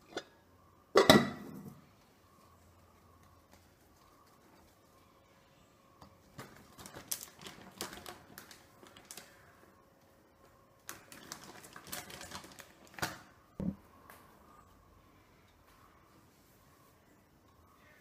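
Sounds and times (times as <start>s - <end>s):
plastic bag crinkling: 6.4s - 9.5s, 10.8s - 13.2s.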